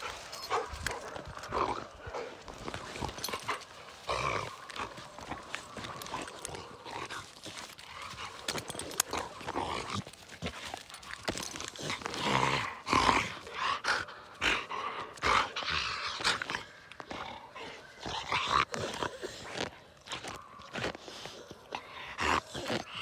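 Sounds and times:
handling clicks and rustles: 0:00.0 - 0:12.2
dog breathing heavily: 0:00.0 - 0:23.0.

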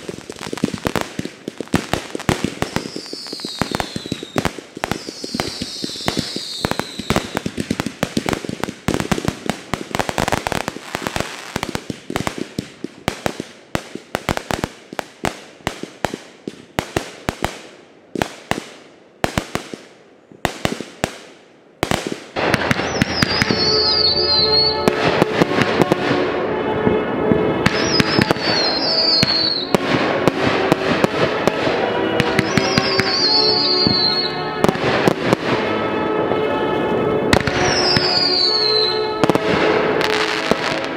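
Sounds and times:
fireworks banging: 0:00.0 - 0:40.9
music: 0:22.4 - 0:40.9.

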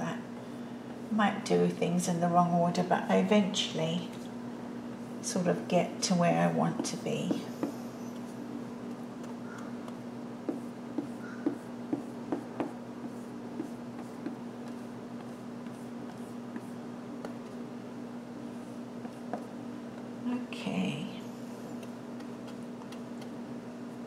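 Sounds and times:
steady hum: 0:00.0 - 0:24.0
paintbrush strokes on canvas: 0:10.5 - 0:17.6.

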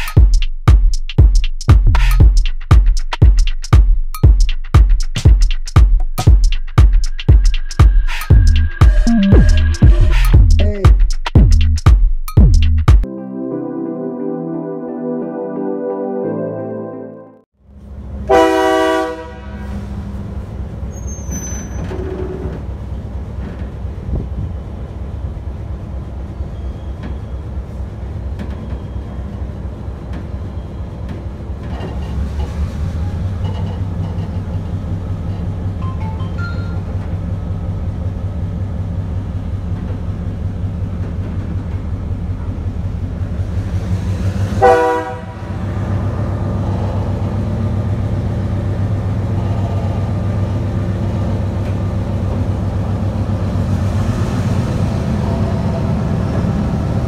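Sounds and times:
diesel locomotive engine throbbing: 0:00.0 - 0:12.9, 0:21.8 - 0:57.0
locomotive horn blast: 0:18.2 - 0:20.0, 0:44.6 - 0:45.7.

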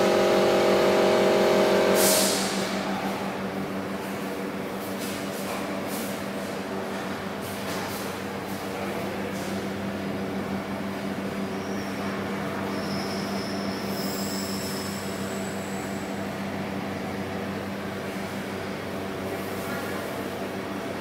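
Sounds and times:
diesel generator drone: 0:00.0 - 0:21.0
faint high-pitched whistles: 0:11.5 - 0:15.6.

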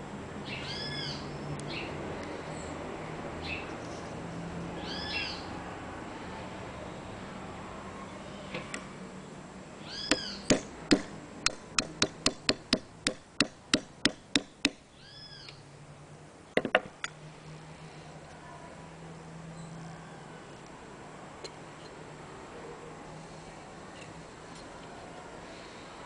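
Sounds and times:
high rising and falling call: 0:04.8 - 0:05.5, 0:14.9 - 0:15.6
hammer tapping metal: 0:10.1 - 0:14.8.

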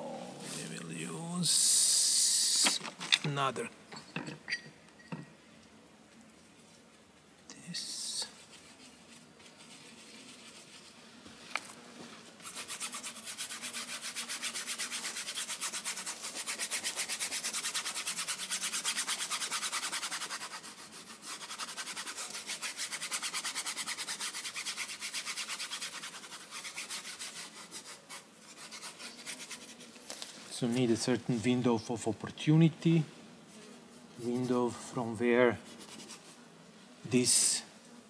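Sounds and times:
paintbrush scrubbing on canvas: 0:07.8 - 0:31.6, 0:33.4 - 0:36.5.

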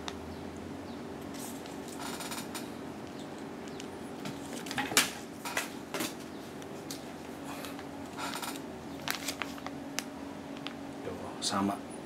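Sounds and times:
faint steady hum: 0:00.0 - 0:12.0
plastic bag crinkling: 0:09.0 - 0:10.8.

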